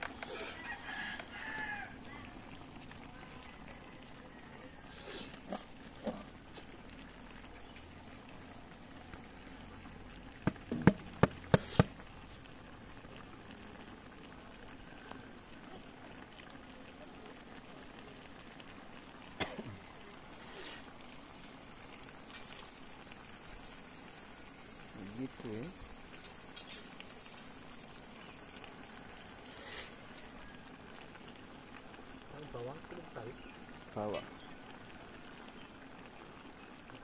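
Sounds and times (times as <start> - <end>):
faint steady hiss: 0.0 - 37.0
sharp knocks or pops: 10.4 - 12.0.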